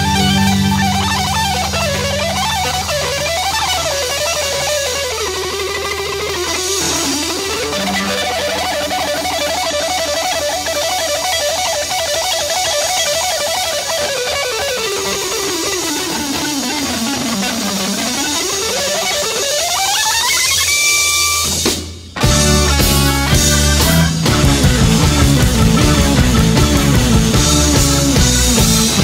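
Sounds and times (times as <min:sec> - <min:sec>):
psychedelic rock music: 0:00.0 - 0:29.0.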